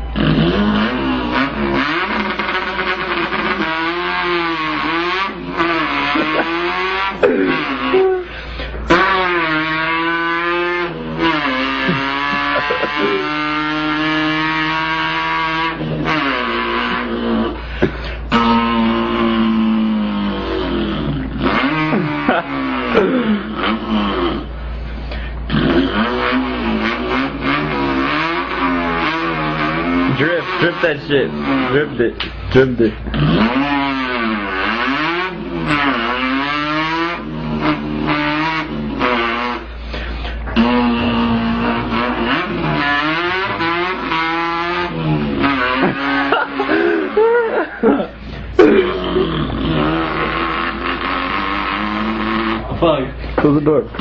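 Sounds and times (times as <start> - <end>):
person imitating car engine: 0.0 - 54.0.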